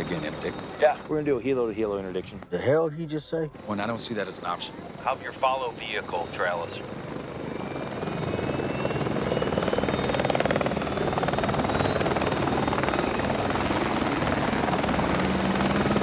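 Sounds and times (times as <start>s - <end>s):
helicopter rotor and turbine: 0.0s - 2.8s, 3.5s - 16.0s
faint rising whine: 3.3s - 16.0s.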